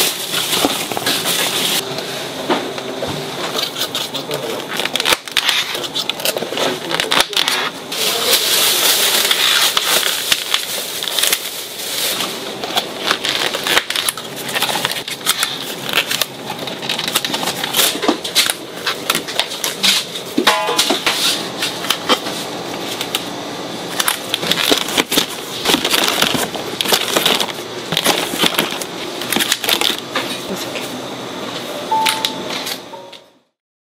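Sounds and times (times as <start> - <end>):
short beep: 31.8 - 33.4.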